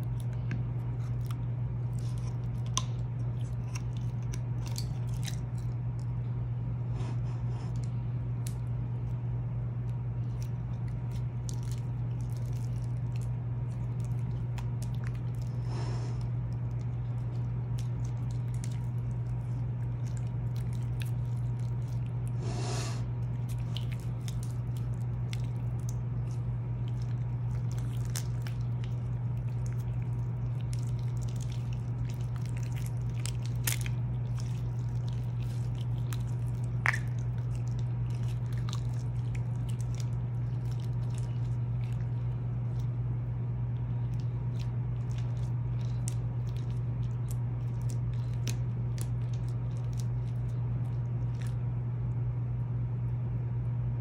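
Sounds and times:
low steady hum: 0.0 - 54.0
slime squishing by hand: 7.0 - 52.2.

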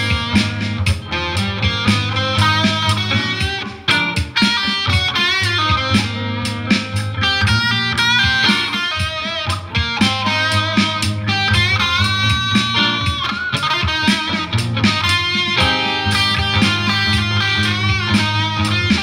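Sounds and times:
bass line: 0.0 - 19.0
guitar melody with bent notes: 0.0 - 19.0
drum hits: 11.6 - 19.0.

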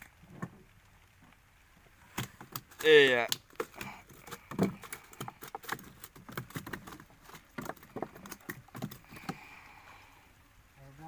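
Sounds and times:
fish flapping and slapping: 2.1 - 9.5.

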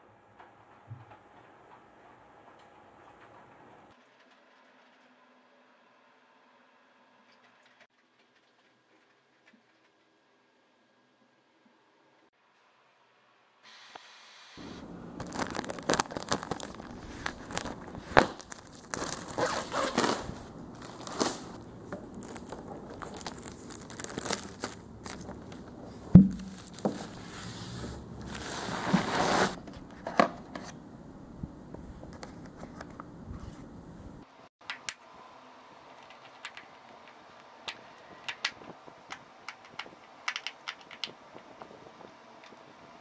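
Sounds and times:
plastic crinkling and rustling: 14.7 - 29.9
low thump: 26.1 - 26.7.

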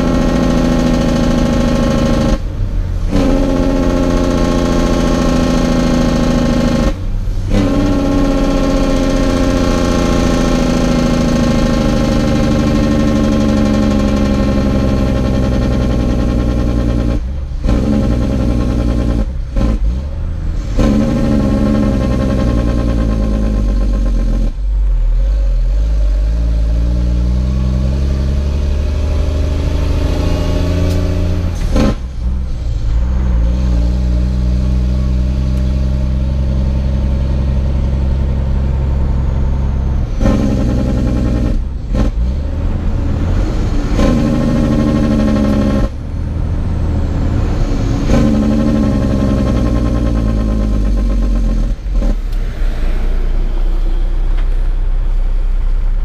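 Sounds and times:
truck diesel engine shifting gears: 0.0 - 56.0.

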